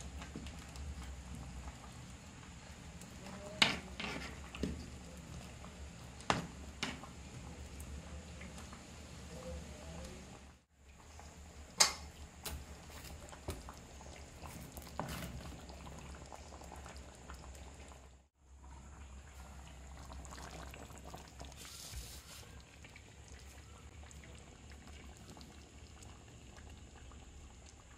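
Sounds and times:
curry simmering and bubbling: 0.0s - 27.9s.

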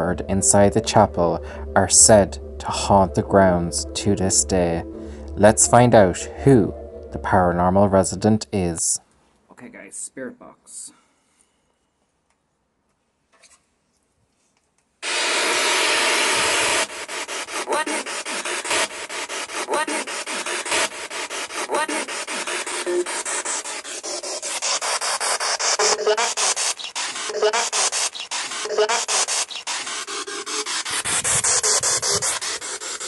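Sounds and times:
radio static scanning: 0.0s - 8.9s, 15.0s - 33.0s
snatches of radio sound: 15.0s - 33.0s.

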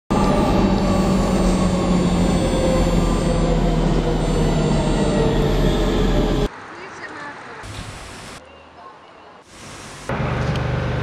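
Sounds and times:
wheels rumbling on rails: 0.1s - 8.0s.

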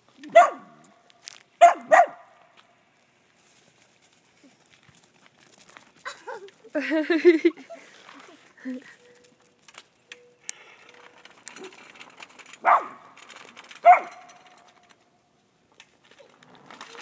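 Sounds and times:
dog barking: 0.3s - 0.8s, 1.6s - 2.3s, 12.6s - 13.0s, 13.8s - 14.3s.

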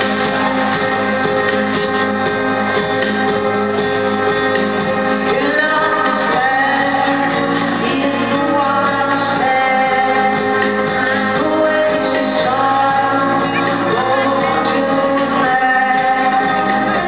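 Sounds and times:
live band playing dream-pop: 0.0s - 17.0s
woman singing long notes: 5.3s - 17.0s.

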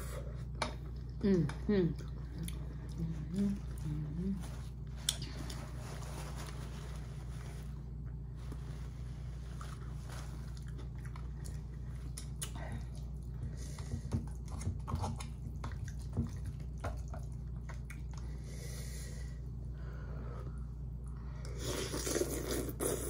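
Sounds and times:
steady low hum: 0.0s - 23.0s
close chewing: 9.6s - 13.4s, 14.2s - 18.4s.

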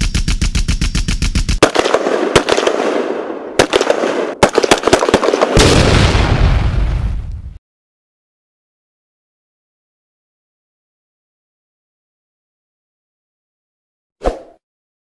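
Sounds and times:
rapid gunfire: 0.0s - 5.8s
loud single gunshots: 1.6s - 6.6s.

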